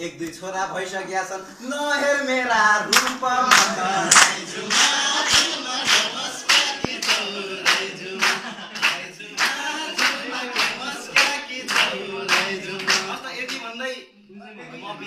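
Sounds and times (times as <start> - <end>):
people singing folk song: 2.0 - 13.2
hands clapping a steady beat: 2.9 - 13.8.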